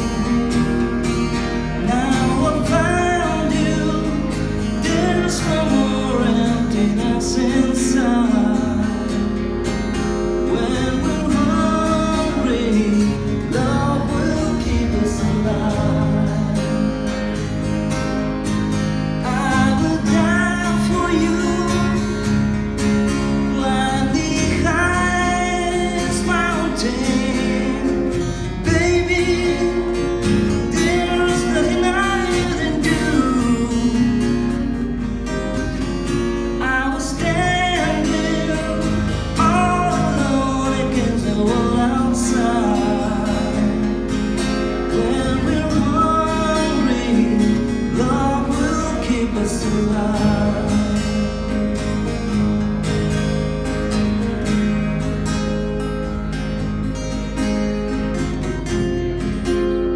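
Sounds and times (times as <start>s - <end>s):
man singing pop ballad: 0.0s - 9.6s, 10.2s - 17.2s, 19.2s - 22.3s, 23.4s - 35.1s, 36.5s - 51.5s
acoustic guitars strumming: 0.0s - 59.9s.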